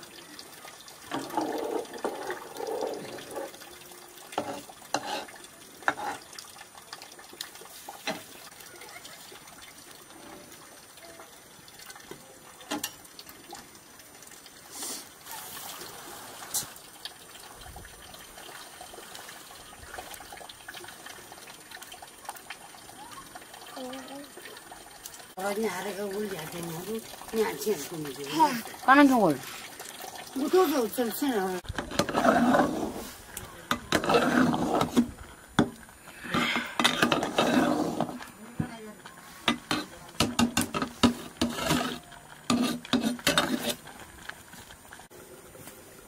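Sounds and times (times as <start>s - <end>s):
faint steady hiss: 0.0s - 46.0s
firewood knocking and crackling: 31.6s - 38.8s, 39.4s - 41.8s.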